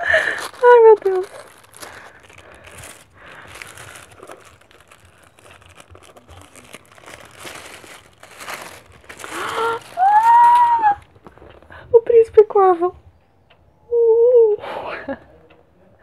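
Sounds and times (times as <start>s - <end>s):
tissue paper crinkling and tearing: 0.0s - 11.5s
woman squealing excitedly: 9.3s - 11.0s.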